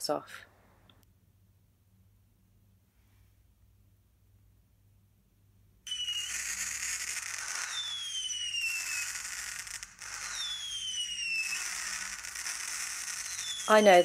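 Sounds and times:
crackling hiss: 5.9 - 14.0
firework whistling: 5.9 - 14.0.

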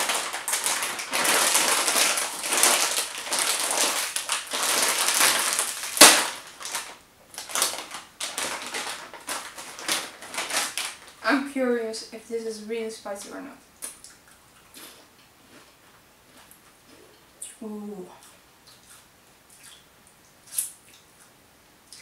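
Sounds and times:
sharp crack: 0.0 - 11.0
foil chip bag rustling: 0.0 - 11.5.

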